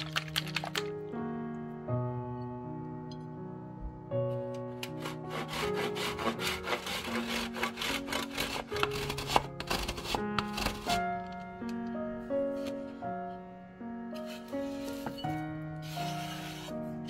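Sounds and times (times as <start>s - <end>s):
background music: 0.0s - 17.0s
cheese rasping on metal grater: 4.8s - 11.0s, 15.8s - 16.7s.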